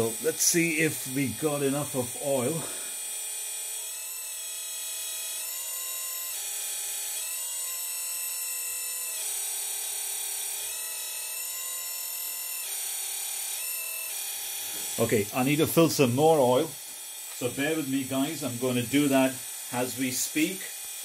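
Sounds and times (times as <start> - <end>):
hydraulic pump whining: 14.6 - 20.9.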